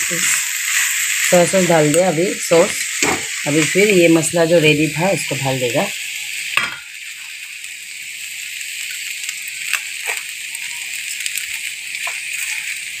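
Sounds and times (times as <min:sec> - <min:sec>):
chicken sizzling in a wok: 0:00.0 - 0:13.0.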